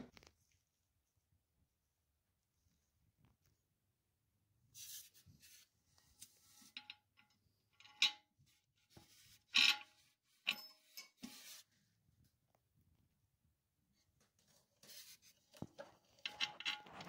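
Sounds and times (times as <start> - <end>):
bolt rubbing and scraping: 6.5 - 8.3, 9.0 - 11.7, 14.8 - 17.0.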